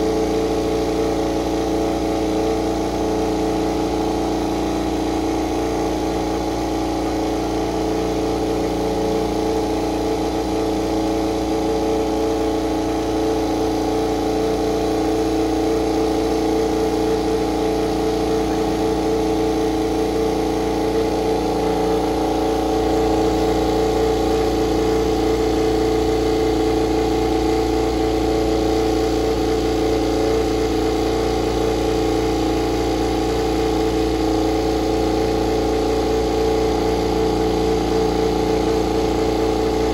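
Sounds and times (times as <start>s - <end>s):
motorcycle engine idling: 0.0s - 39.9s.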